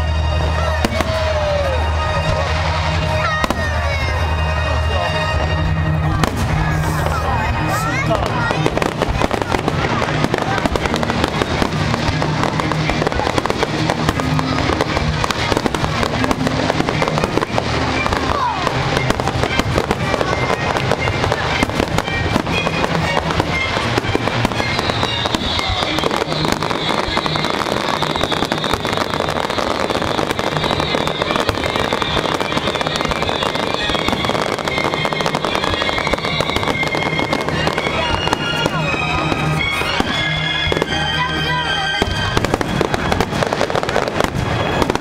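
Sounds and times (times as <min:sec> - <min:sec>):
fireworks bangs and crackles: 0:00.0 - 0:45.0
music playing: 0:00.0 - 0:45.0.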